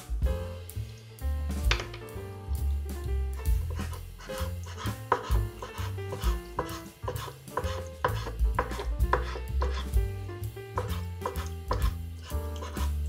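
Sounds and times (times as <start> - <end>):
background music with bass: 0.0 - 13.0
knife chopping on wooden board: 3.4 - 9.9, 10.8 - 13.0.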